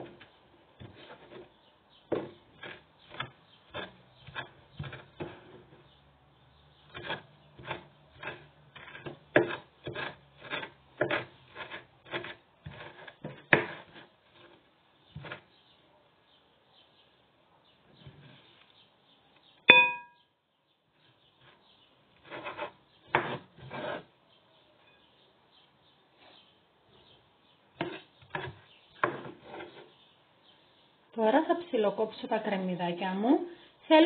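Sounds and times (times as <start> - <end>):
knife chopping on wooden board: 2.1 - 5.6, 6.9 - 14.0, 22.2 - 23.8, 27.8 - 29.7.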